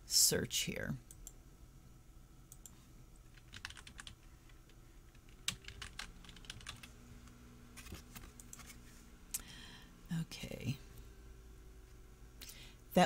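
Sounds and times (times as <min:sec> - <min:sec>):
typing on computer keyboard: 0:03.3 - 0:04.2, 0:05.2 - 0:06.9.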